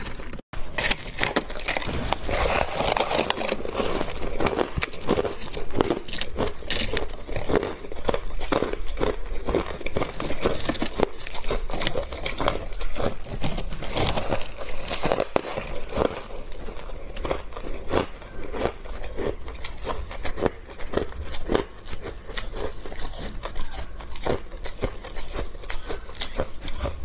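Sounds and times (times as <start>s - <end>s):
ice crunching and crackling: 0.0s - 27.0s.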